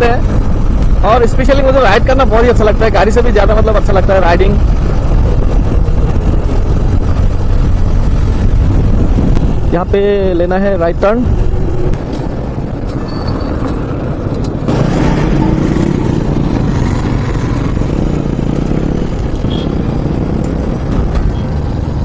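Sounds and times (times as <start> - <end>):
road noise: 0.0 - 22.0
motorcycle engine running: 11.3 - 22.0.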